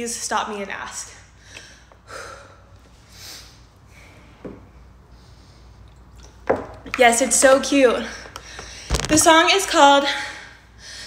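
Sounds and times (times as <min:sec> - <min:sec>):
brief sharp sound: 0:08.9 - 0:09.2.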